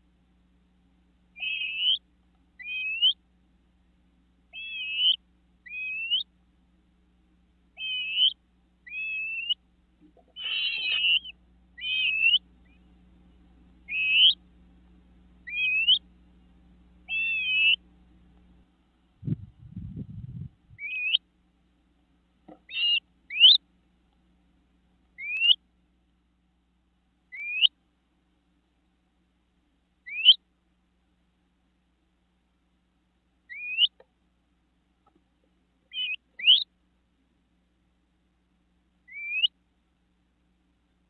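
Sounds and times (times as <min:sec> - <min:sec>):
bird whistled wheep calls: 0:01.4 - 0:02.0, 0:02.6 - 0:03.2, 0:04.5 - 0:06.3, 0:07.8 - 0:09.6, 0:10.3 - 0:12.8, 0:13.9 - 0:14.4, 0:15.4 - 0:16.0, 0:17.1 - 0:17.8, 0:20.8 - 0:21.2, 0:22.6 - 0:23.6, 0:25.2 - 0:25.6, 0:27.3 - 0:27.7, 0:30.0 - 0:30.4, 0:33.5 - 0:34.0, 0:35.9 - 0:36.7, 0:39.1 - 0:39.6.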